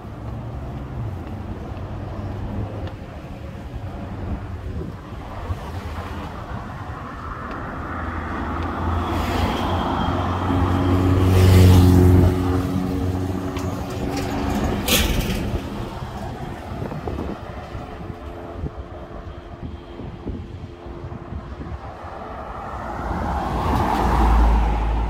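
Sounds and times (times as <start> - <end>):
vehicle engine passing by: 8.1 - 17.0, 22.5 - 25.0.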